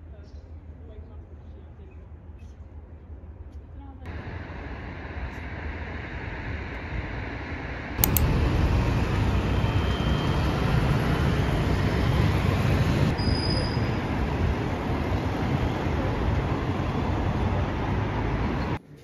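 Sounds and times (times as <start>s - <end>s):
traffic rumble of engines and tyres: 4.0s - 19.0s
sharp click: 8.0s - 8.4s.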